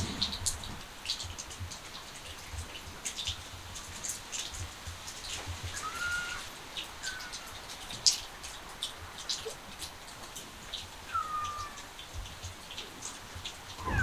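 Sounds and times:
rain dripping and pattering: 0.0 - 14.0
short high calls: 5.8 - 7.5, 11.1 - 11.8.

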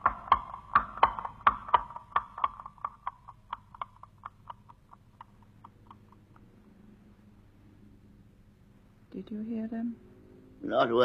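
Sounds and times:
horse hooves clopping: 0.0 - 6.8.

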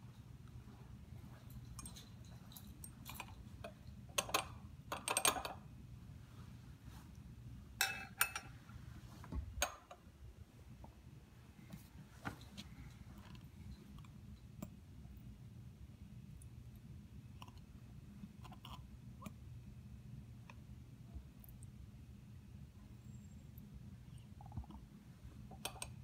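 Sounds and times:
glassware clinking: 7.8 - 8.5.

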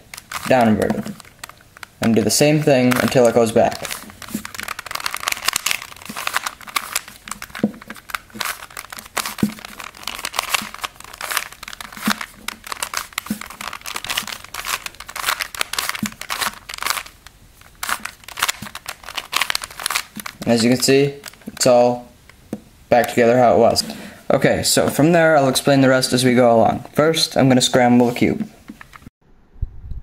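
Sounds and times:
plastic puzzle cube clicking: 2.9 - 17.2.

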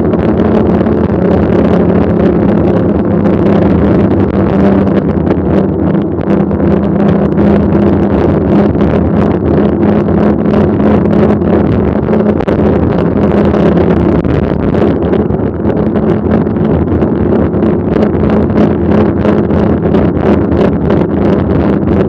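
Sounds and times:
bike tyres rolling hum: 0.0 - 22.0
wind rushing over microphone: 0.0 - 22.0.

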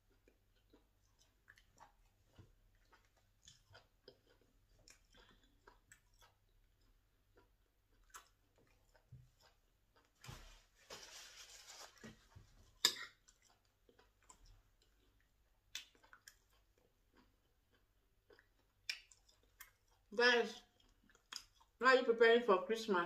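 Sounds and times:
chewing and mouth clicks: 0.0 - 10.2, 12.7 - 21.8
scraping and rustling: 10.2 - 12.8.

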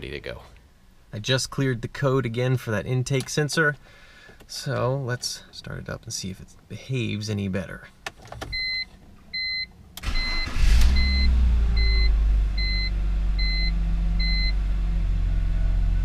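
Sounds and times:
car engine starting and idling: 8.2 - 16.0
car warning chime beeping: 8.5 - 14.6.

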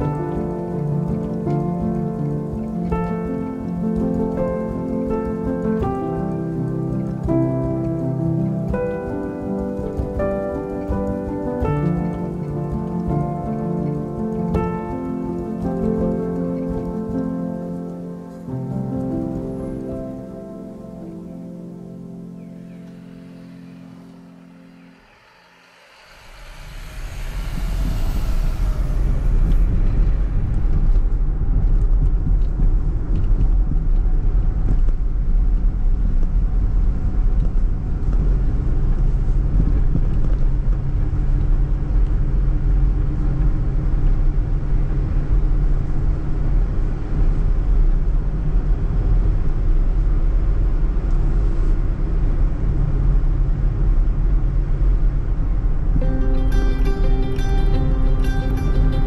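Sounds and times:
van engine and road rumble: 26.3 - 56.0.

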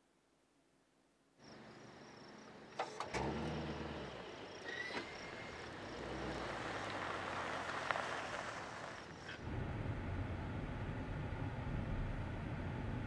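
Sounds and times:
car engine starting and running: 2.7 - 13.0.

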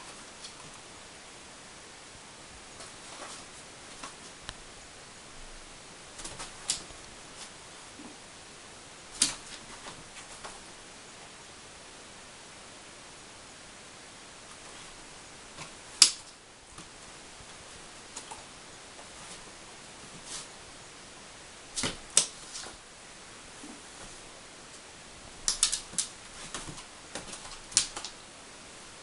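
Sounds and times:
dog claws clicking on wooden floor: 25.5 - 28.1.

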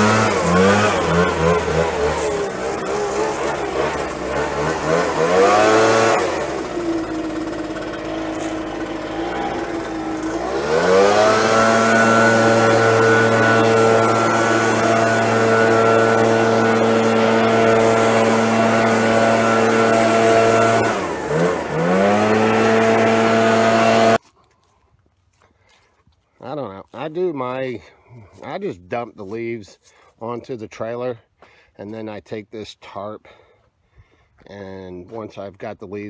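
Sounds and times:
leaf blower engine revving: 0.0 - 24.2.

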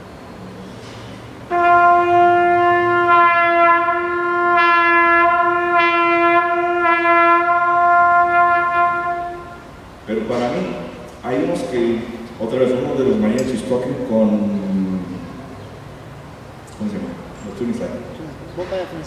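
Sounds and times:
trumpet long held note: 1.5 - 9.9.

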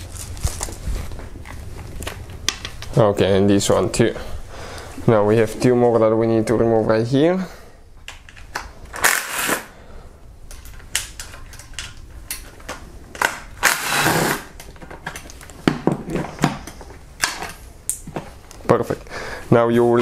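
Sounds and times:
power tool bursts: 9.0 - 9.7, 13.6 - 14.5.

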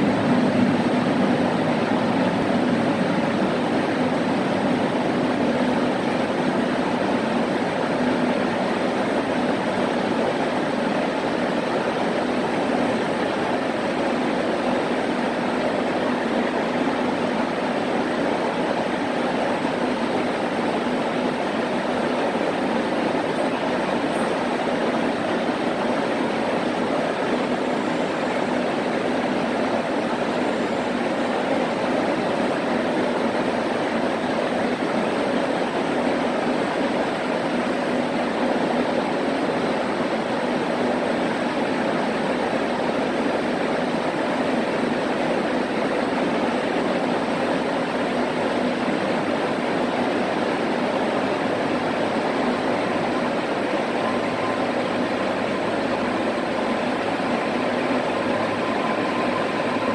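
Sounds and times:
electric train equipment hum: 0.0 - 59.9
faint held tone: 52.5 - 59.9.

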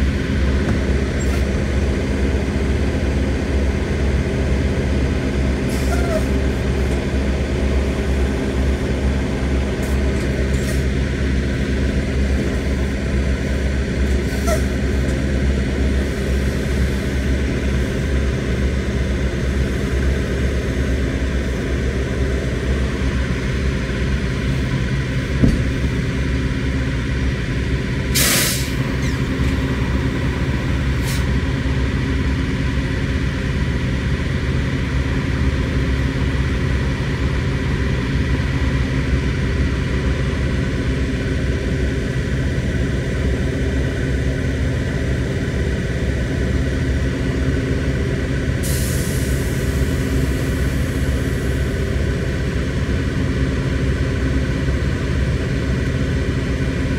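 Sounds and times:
truck diesel engine idling: 0.0 - 56.9
air brakes hissing: 5.6 - 6.5, 9.8 - 11.0, 14.2 - 15.0, 28.1 - 29.6, 31.0 - 31.4, 48.6 - 51.7.

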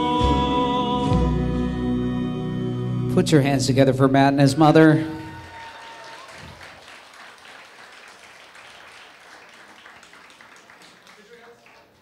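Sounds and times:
guests applauding: 5.2 - 12.0.

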